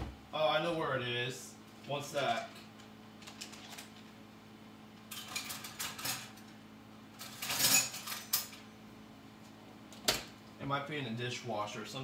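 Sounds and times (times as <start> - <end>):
metal cutlery clattering: 5.1 - 6.4, 7.2 - 8.6.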